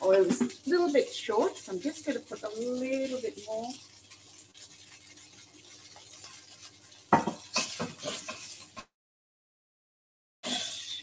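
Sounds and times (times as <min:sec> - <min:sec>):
tofu sizzling in a pan: 0:00.0 - 0:08.9
utensil scraping a pan: 0:02.9 - 0:08.9.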